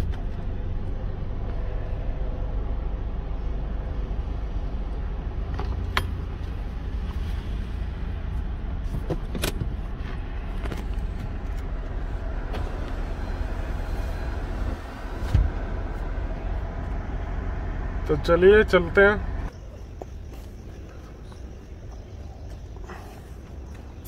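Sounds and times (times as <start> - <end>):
car engine low rumble: 0.0 - 24.0
dull thump: 15.2 - 15.7.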